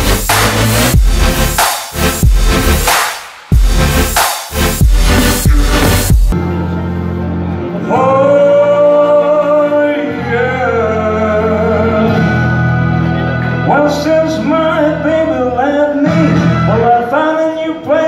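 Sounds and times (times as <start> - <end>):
amplified backing music: 0.0 - 18.0
man singing into microphone: 7.8 - 12.5, 13.6 - 18.0.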